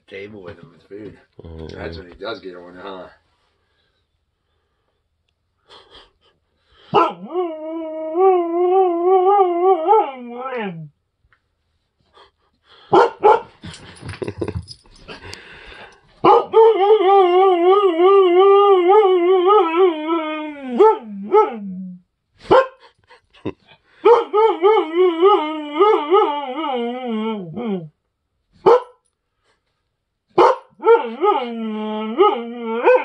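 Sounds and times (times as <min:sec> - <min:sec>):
husky howling: 0:24.2 - 0:27.9, 0:30.8 - 0:33.0.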